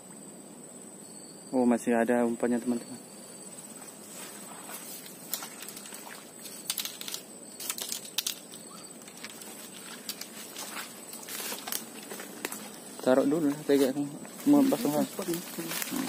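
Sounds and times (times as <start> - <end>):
steady hiss: 0.0 - 16.0
footsteps crunching dry leaves: 3.7 - 16.0.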